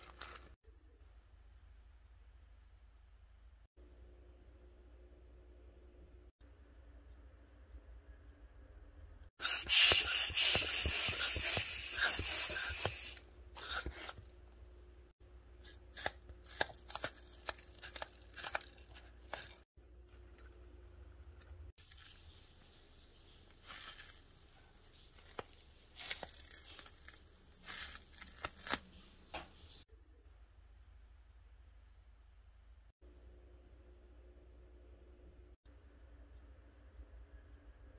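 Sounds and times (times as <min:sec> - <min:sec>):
tape tearing hiss: 0:09.4 - 0:14.2
tape crackling: 0:15.9 - 0:20.6, 0:21.3 - 0:29.5.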